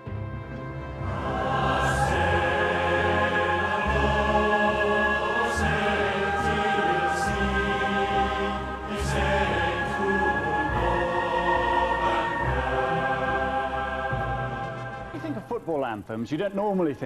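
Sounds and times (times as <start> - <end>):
choir singing held chords: 0.1 - 15.7.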